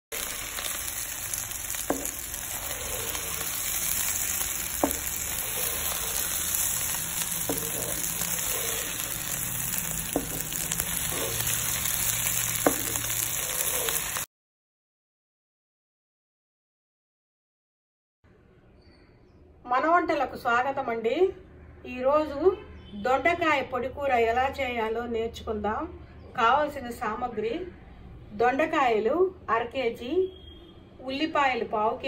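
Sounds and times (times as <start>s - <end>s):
vegetables sizzling in oil: 0.0s - 14.3s.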